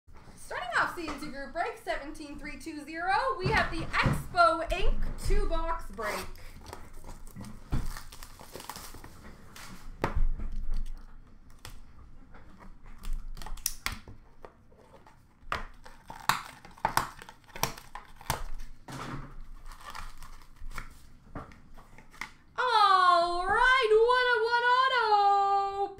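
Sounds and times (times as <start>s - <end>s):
cardboard rustling and crinkling: 3.5s - 22.3s.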